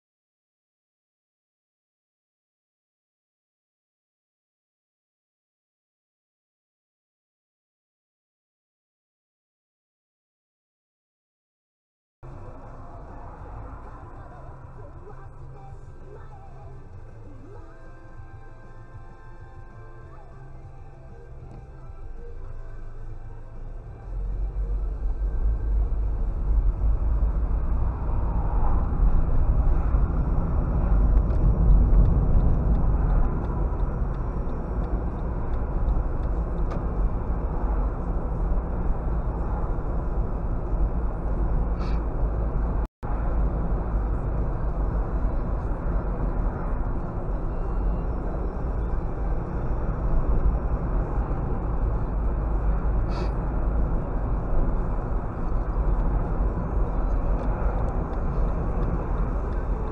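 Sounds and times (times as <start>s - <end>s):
car engine and tyre rumble: 12.2s - 59.9s.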